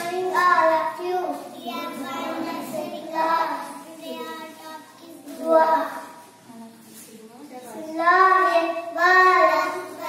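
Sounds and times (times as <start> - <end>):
young child singing: 0.0 - 6.2, 7.6 - 10.0.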